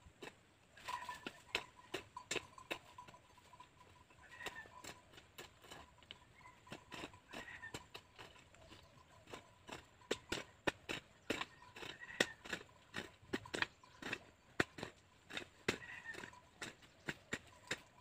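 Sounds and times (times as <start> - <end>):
hoe chopping into dry soil: 6.7 - 18.0.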